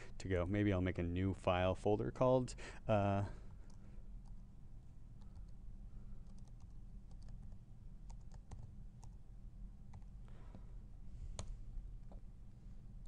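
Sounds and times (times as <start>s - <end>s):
low steady hum: 0.0s - 13.0s
keyboard typing: 5.2s - 5.6s, 6.2s - 9.2s, 9.9s - 10.1s.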